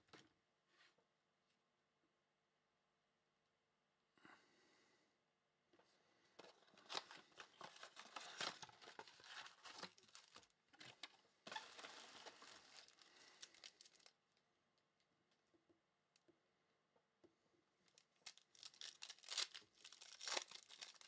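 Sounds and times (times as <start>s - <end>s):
plastic and foil packs crinkling: 6.4s - 14.2s, 17.8s - 21.0s.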